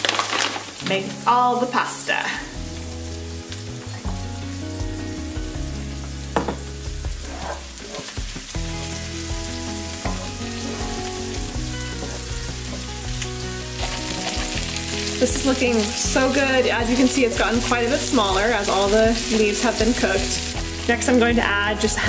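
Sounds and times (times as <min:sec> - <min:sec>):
greens sizzling in a skillet: 0:00.0 - 0:22.0
soft background music: 0:00.0 - 0:22.0
knock: 0:06.4 - 0:06.7.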